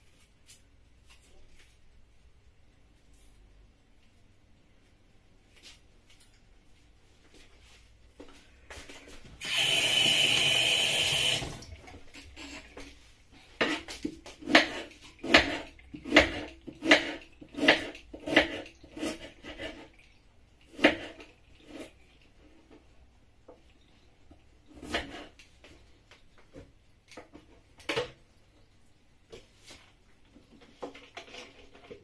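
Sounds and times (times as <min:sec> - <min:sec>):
knife chopping on wooden board: 0:14.4 - 0:19.3.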